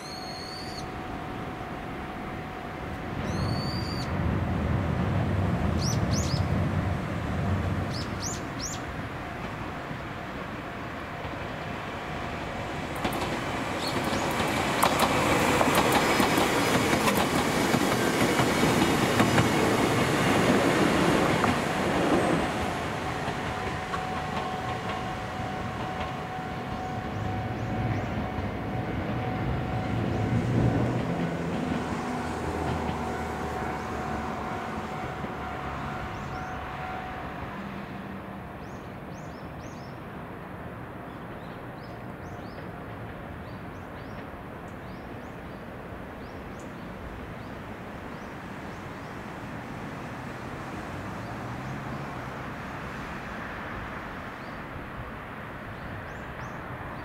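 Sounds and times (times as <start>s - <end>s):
train wheels clattering on rail joints: 12.8s - 34.2s.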